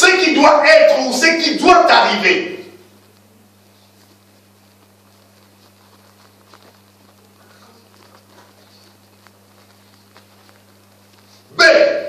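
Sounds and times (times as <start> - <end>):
low electrical hum: 0.0 - 12.0
faint clicks and taps: 3.0 - 11.4.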